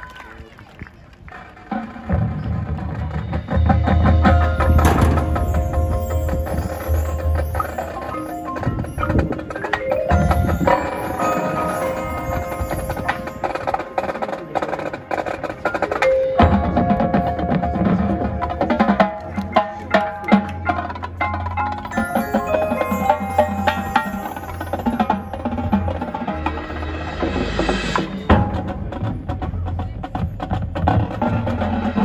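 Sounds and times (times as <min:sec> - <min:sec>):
marching band percussion music: 0:01.7 - 0:32.0
mallet bell-like notes: 0:03.6 - 0:14.9, 0:15.8 - 0:28.7.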